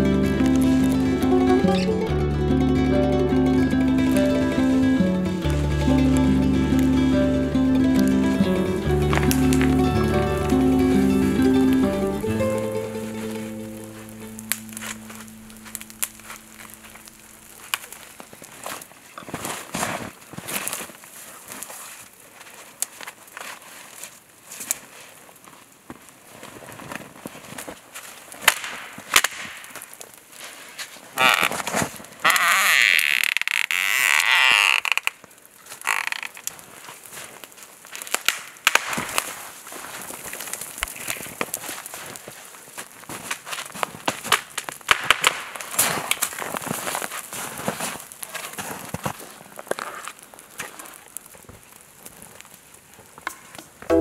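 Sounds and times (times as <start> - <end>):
music chord: 0.0 - 18.0
dry branches snapping: 5.3 - 54.0
crackles and crunches in snow: 8.5 - 53.9
wooden pole scraping tree bark: 30.4 - 36.5.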